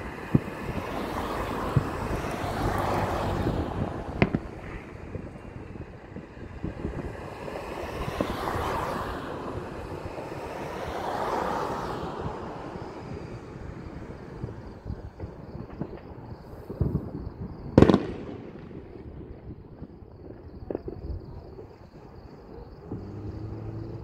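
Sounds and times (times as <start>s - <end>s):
traffic passing close by: 0.0s - 24.0s
distant firework bang: 4.1s - 5.2s, 16.7s - 19.9s.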